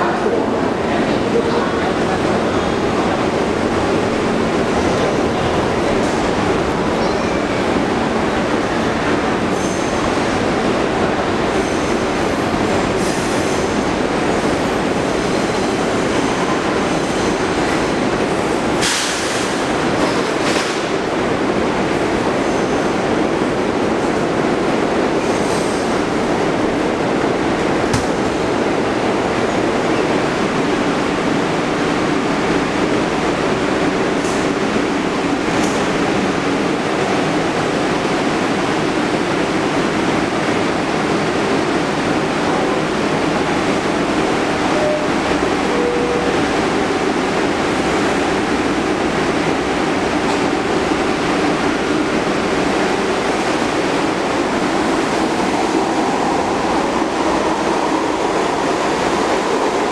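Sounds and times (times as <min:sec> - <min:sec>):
subway train rumble and hum: 0:00.0 - 0:59.9.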